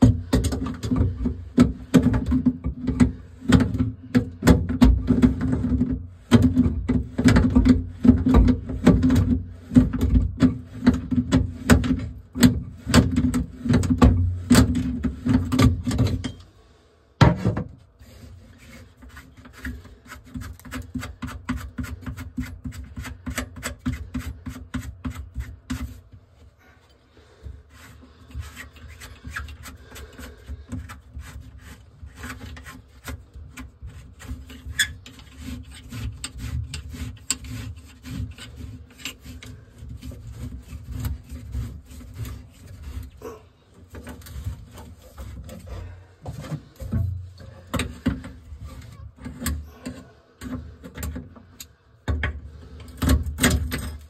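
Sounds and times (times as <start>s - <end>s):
metal scraping and clicking on threads: 28.3s - 43.2s, 46.3s - 54.0s.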